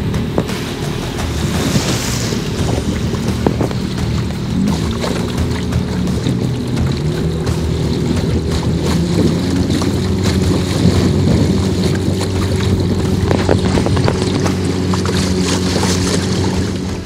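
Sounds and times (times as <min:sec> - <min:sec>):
outboard motor humming: 0:00.0 - 0:17.0
water: 0:00.0 - 0:17.0
wind noise on microphone: 0:00.0 - 0:17.0.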